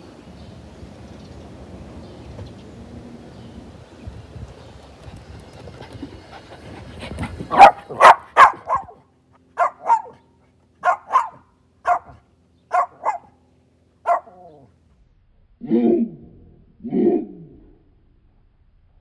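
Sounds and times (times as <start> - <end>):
small dog barking: 7.5 - 9.0, 9.6 - 10.2, 10.8 - 13.4, 14.1 - 14.7.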